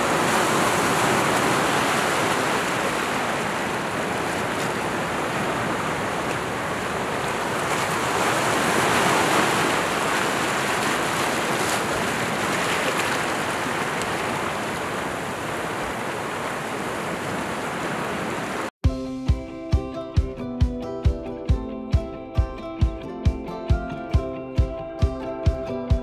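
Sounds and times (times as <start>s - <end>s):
sea surf breaking on shore: 0.0s - 18.7s.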